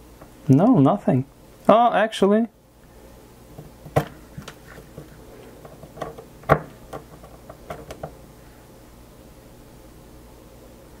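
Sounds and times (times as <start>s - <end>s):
metal disc clicking and knocking: 3.6s - 8.2s.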